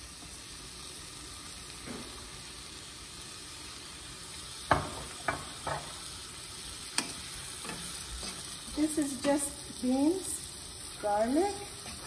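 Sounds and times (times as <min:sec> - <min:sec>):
beans sizzling in a frying pan: 0:00.0 - 0:12.0.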